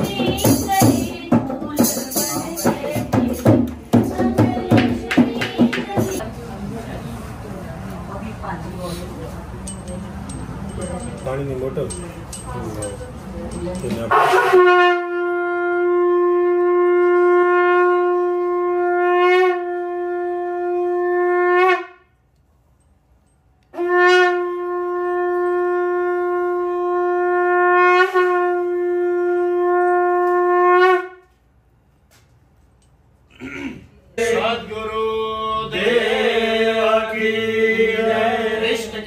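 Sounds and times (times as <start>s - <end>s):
conch shell blasts: 13.9s - 22.2s, 23.7s - 31.3s.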